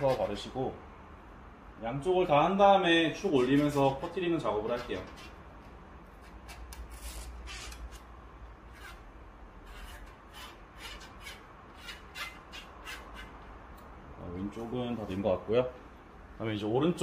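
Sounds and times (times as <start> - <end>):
short scratchy strokes: 8.7 - 13.4.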